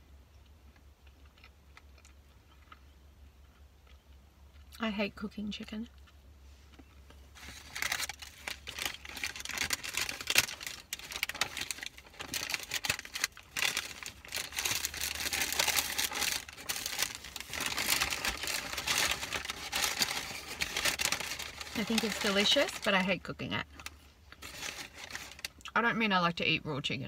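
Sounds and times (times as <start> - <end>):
paper packaging crinkling: 7.4 - 25.6.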